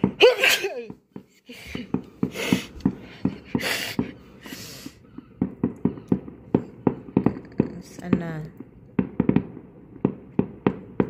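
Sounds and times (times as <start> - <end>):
fireworks exploding: 0.0 - 11.0
fireworks hissing: 1.7 - 5.0.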